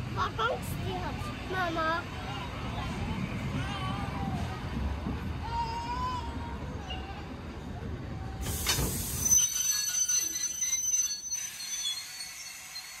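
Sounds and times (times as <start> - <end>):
train carriages rumbling: 0.0 - 13.0
high wheel squeal: 8.5 - 13.0.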